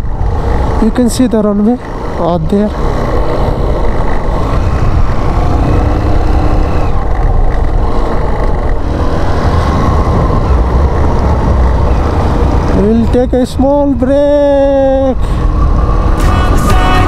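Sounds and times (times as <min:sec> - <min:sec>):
motorcycle engine rumbling: 0:00.0 - 0:17.0.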